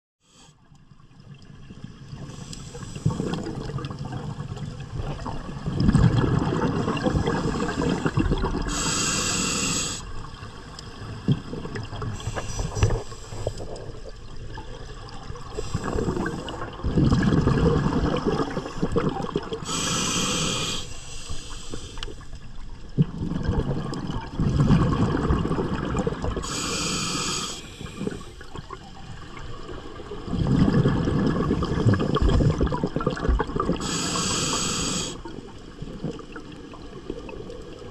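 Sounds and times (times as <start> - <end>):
exhaled bubbles rumbling underwater: 0.8 - 37.9
regulator hiss: 8.7 - 10.2, 19.6 - 22.2, 26.4 - 28.4, 33.8 - 35.2.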